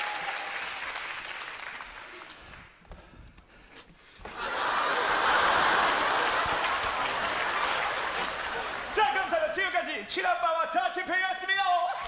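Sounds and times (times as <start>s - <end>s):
audience applause: 0.0s - 2.8s, 4.4s - 9.3s
audience laughter: 4.3s - 8.9s.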